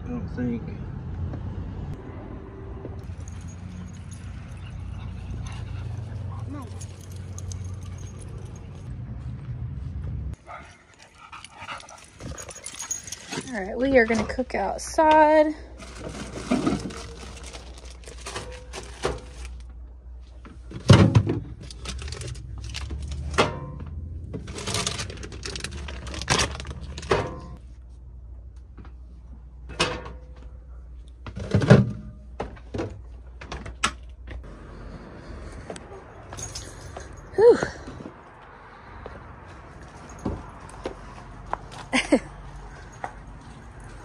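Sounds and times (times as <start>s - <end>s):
plastic bag rustling: 15.8s - 19.6s, 24.4s - 27.1s.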